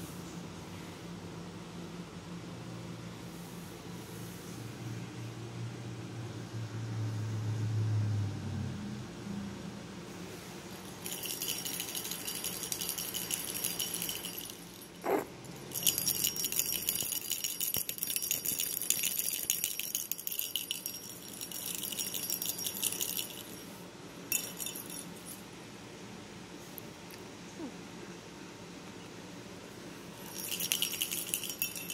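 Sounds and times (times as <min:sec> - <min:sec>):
cat toy bell jingling: 0:10.8 - 0:25.4, 0:30.2 - 0:31.9.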